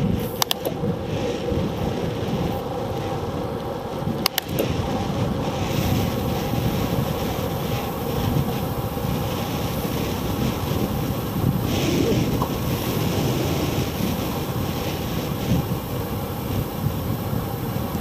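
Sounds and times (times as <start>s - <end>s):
bicycle tyre and road noise: 0.0s - 18.0s
wind buffeting microphone: 0.0s - 18.0s
sharp clicks: 0.4s - 0.8s, 4.2s - 4.8s.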